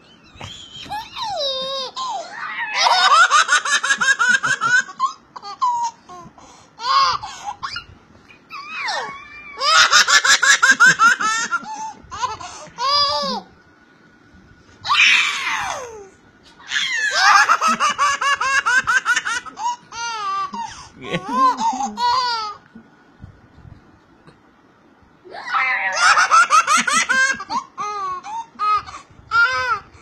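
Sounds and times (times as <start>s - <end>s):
baby laughing: 0.4s - 13.5s, 16.6s - 22.7s, 25.6s - 29.9s.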